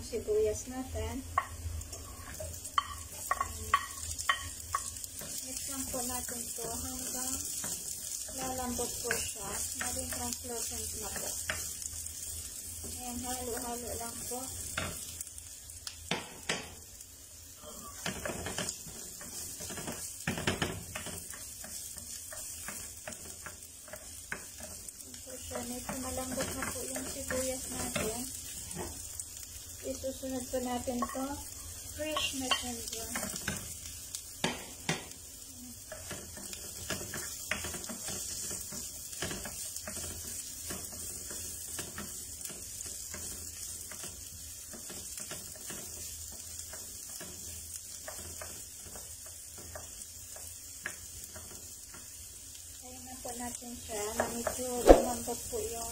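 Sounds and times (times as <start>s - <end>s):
onion sizzling in oil: 0.0s - 55.9s
spatula scraping a pan: 17.9s - 29.1s.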